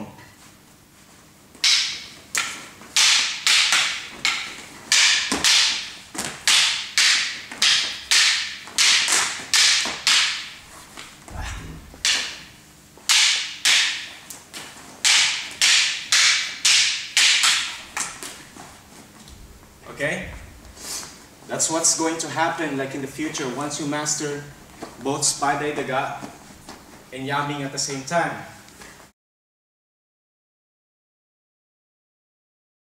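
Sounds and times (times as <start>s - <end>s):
sticks and knife clacking: 1.6s - 12.5s, 13.1s - 14.4s, 15.0s - 18.4s
low thud: 11.2s - 12.1s, 19.3s - 20.9s.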